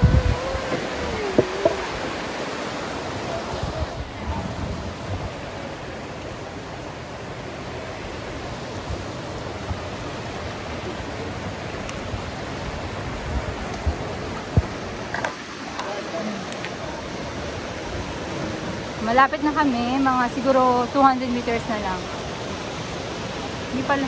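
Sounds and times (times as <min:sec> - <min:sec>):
water rushing over rocks: 0:00.0 - 0:24.0.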